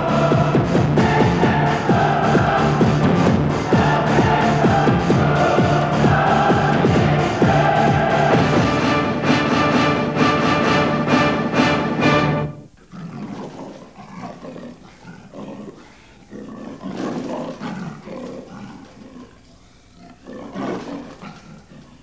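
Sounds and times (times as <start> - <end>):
music cue: 0.0 - 12.8.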